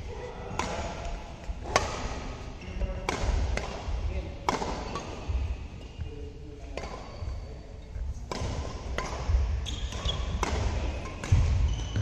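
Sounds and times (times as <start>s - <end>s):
rackets striking shuttlecock: 0.5s - 2.2s, 2.9s - 5.9s, 6.6s - 7.2s, 8.0s - 12.0s.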